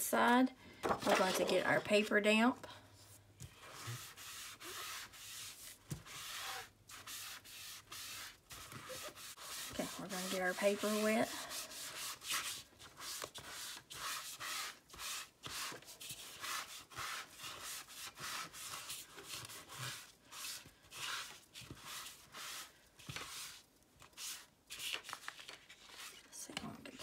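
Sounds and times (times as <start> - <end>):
damp sponge rubbing paper: 3.5 - 24.5.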